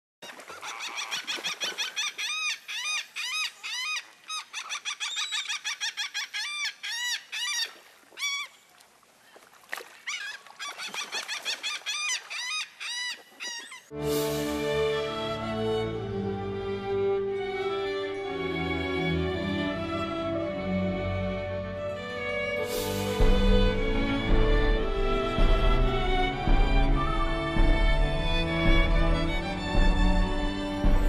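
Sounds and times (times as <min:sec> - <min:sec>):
seagulls calling: 0:00.2 - 0:09.4, 0:10.0 - 0:14.0.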